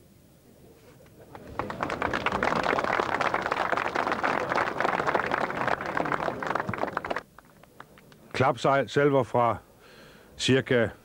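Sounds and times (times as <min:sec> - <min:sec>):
crowd applauding: 0:01.2 - 0:08.0.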